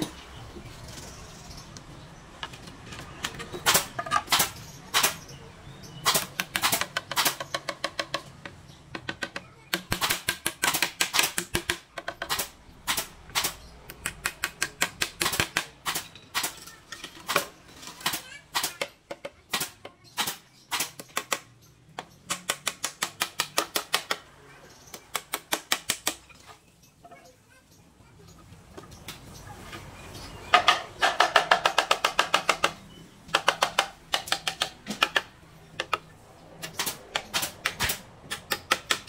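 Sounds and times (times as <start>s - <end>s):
hand tool tapping on bamboo: 6.2s - 13.0s, 13.9s - 16.0s, 22.0s - 24.2s, 24.9s - 26.2s, 30.5s - 39.0s.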